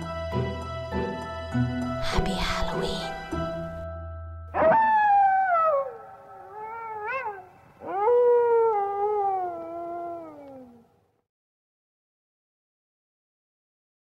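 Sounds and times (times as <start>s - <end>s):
wolf howling: 4.6s - 11.0s.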